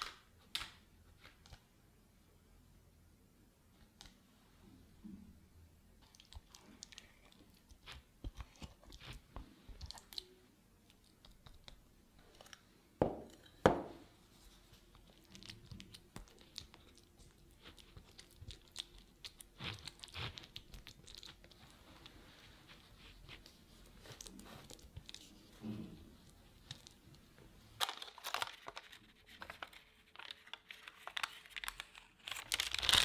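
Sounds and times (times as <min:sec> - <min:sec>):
spatula scraping sticky nougat: 0:14.8 - 0:25.6
sticky clicks and crackles: 0:14.9 - 0:21.7, 0:27.8 - 0:33.0.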